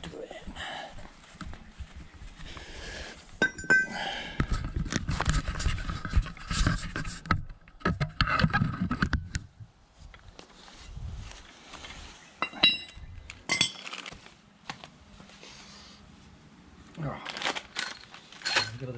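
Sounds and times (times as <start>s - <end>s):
tools clinking: 3.4s - 4.1s, 12.4s - 14.2s, 17.4s - 18.9s
plastic crinkling and rustling: 13.8s - 15.0s, 17.0s - 18.9s.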